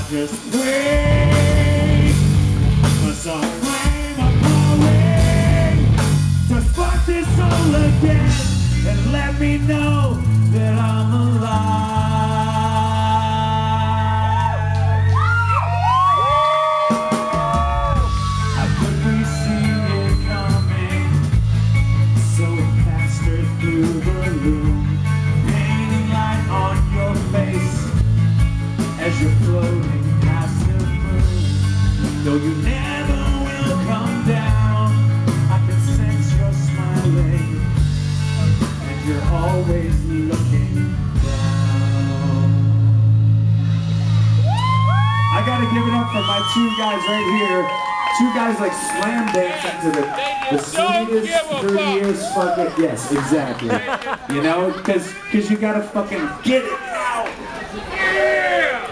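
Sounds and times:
heavy low bass line: 0:00.0 - 0:16.5, 0:17.3 - 0:47.4
rock band playing: 0:00.0 - 0:56.6.

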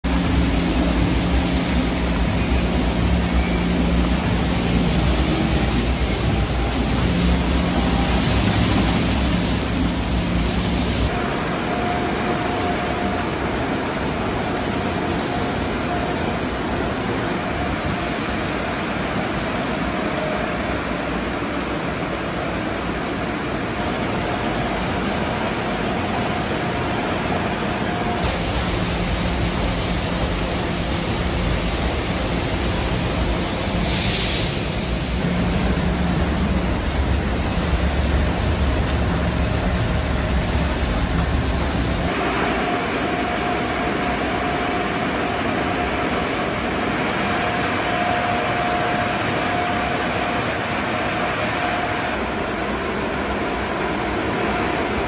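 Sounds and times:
faint steady whine: 0:00.0 - 0:55.0
low machinery hum: 0:00.0 - 0:55.0
water jets spraying car: 0:00.1 - 0:13.2, 0:28.2 - 0:42.3.

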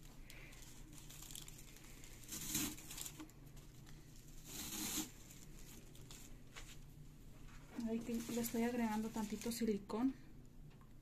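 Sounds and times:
tissue paper rustling: 0:00.0 - 0:09.8.

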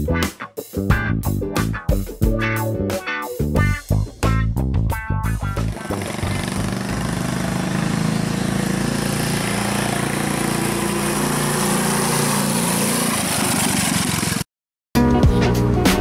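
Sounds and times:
minibike engine running: 0:05.6 - 0:14.4.

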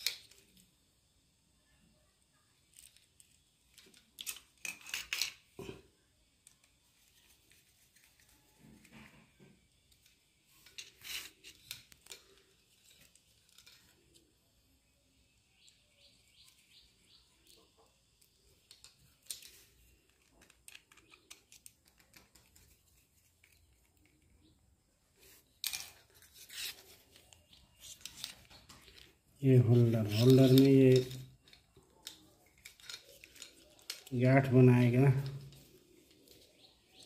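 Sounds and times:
screwdriver clicks and scrapes: 0:03.8 - 0:05.4, 0:09.9 - 0:14.0, 0:25.3 - 0:29.1.

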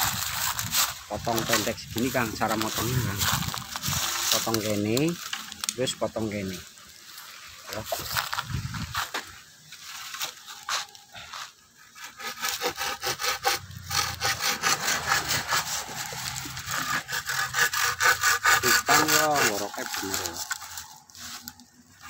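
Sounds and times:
hand saw cutting bamboo: 0:00.0 - 0:05.2, 0:10.6 - 0:22.0.

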